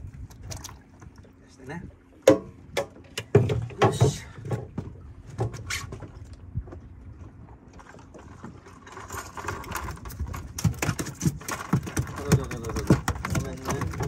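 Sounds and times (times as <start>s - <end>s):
gear knocking in cooler box: 10.2s - 14.0s.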